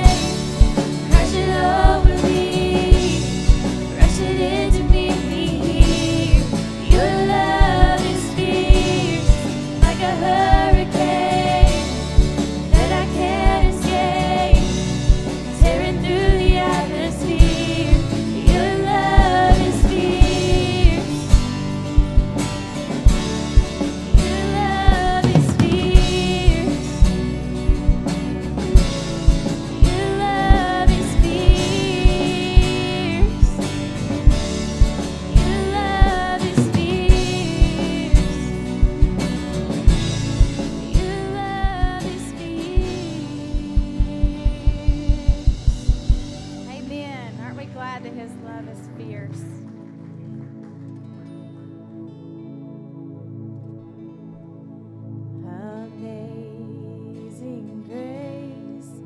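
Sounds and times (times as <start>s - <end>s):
woman singing: 0.0s - 21.6s, 24.1s - 27.3s, 29.8s - 34.0s, 35.3s - 39.4s, 40.8s - 49.3s, 55.4s - 59.0s
steady drum beat: 0.0s - 47.6s
band playing worship song: 0.0s - 52.0s.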